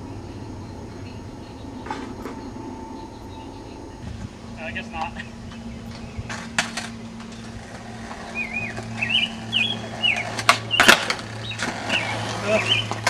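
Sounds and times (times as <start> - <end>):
steady low hum: 0.0 - 13.0
skateboard cracks on concrete: 6.3 - 13.0
small bird chirping: 8.2 - 13.0.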